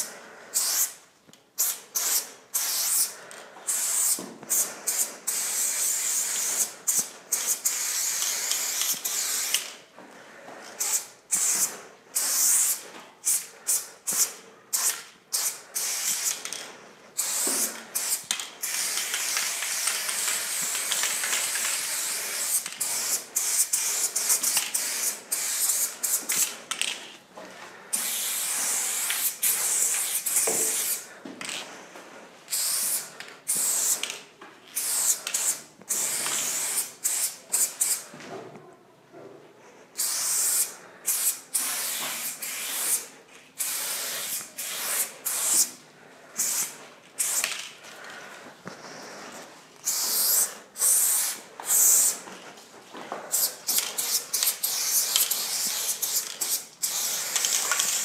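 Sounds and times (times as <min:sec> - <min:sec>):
aerosol spray can hissing: 0:01.6 - 0:09.8, 0:10.8 - 0:16.5, 0:17.2 - 0:26.6, 0:28.0 - 0:31.1, 0:32.5 - 0:34.2, 0:34.8 - 0:38.0, 0:40.0 - 0:45.7, 0:46.4 - 0:47.6, 0:49.8 - 0:52.2, 0:53.3 - 0:58.0.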